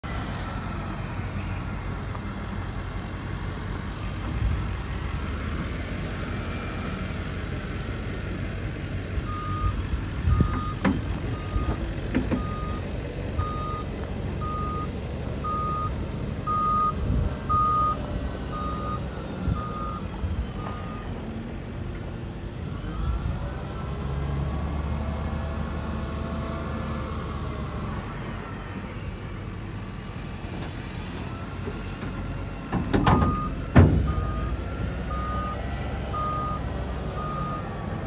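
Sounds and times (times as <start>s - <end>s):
diesel engine running: 0.0s - 38.0s
reversing alarm beeps: 8.7s - 21.2s, 31.2s - 37.9s.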